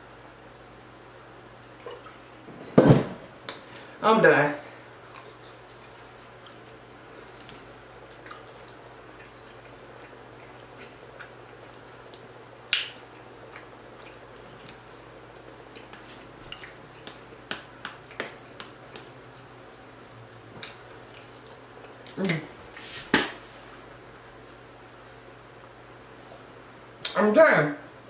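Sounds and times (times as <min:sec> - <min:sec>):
person chewing and lip smacking: 0:01.6 - 0:02.2, 0:05.0 - 0:25.8.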